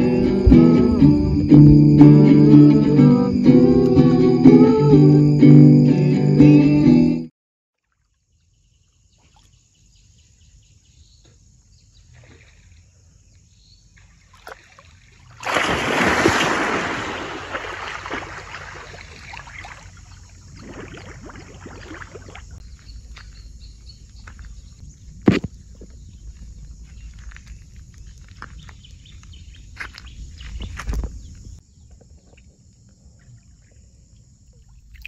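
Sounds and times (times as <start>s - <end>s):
water churning and sloshing: 13.9s - 22.6s
large splash into river water: 14.4s - 20.0s.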